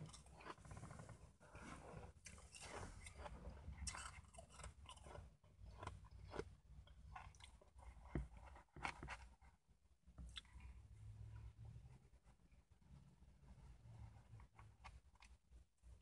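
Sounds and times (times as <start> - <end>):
chewing crunchy ice: 0.0 - 9.4.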